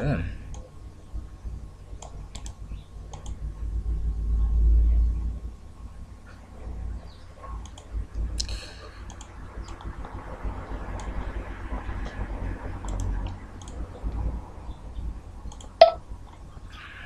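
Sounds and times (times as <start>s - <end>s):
steady low hum: 0.0s - 17.0s
computer mouse clicks: 2.0s - 3.4s, 7.6s - 10.2s, 11.0s - 11.3s, 12.8s - 14.2s, 15.5s - 16.4s.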